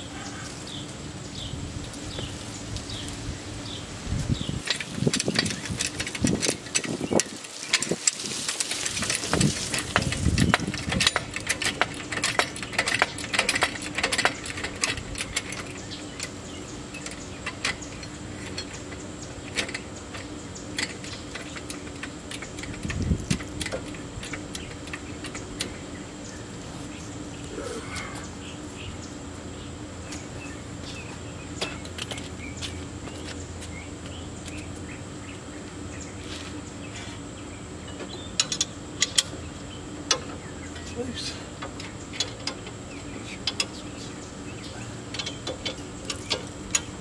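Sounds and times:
steady low hum: 0:00.0 - 0:47.0
metal tools clinking and rattling: 0:04.6 - 0:25.8, 0:44.6 - 0:47.0.

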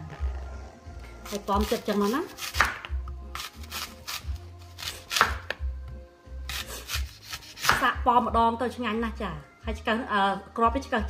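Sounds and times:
knife cutting through apple: 0:01.2 - 0:05.6, 0:06.5 - 0:07.9.

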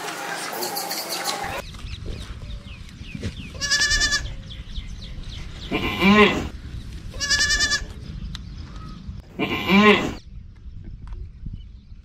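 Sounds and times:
goat bleating: 0:03.6 - 0:04.4, 0:05.7 - 0:06.5, 0:07.2 - 0:07.9, 0:09.4 - 0:10.2.

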